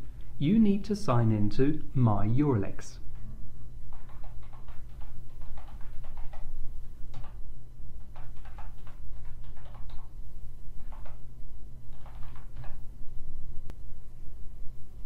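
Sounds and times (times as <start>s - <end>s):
low electrical hum: 0.0s - 15.0s
computer keyboard typing: 3.9s - 7.4s, 8.0s - 10.2s, 10.8s - 11.2s, 11.9s - 12.8s.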